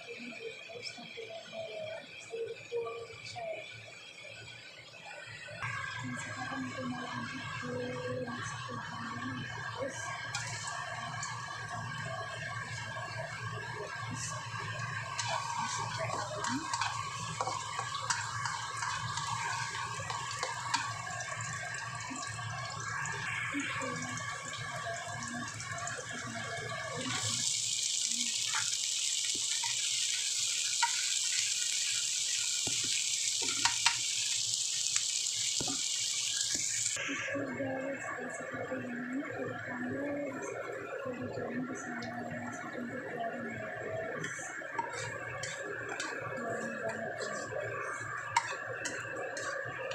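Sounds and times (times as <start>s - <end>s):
shrimp sizzling in hot oil: 6.5s - 37.0s, 44.3s - 49.9s
garlic frying in oil: 9.4s - 37.0s, 44.3s - 49.9s.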